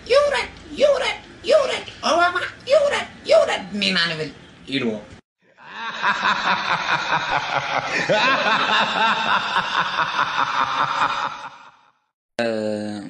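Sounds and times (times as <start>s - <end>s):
group of people laughing: 5.6s - 11.9s.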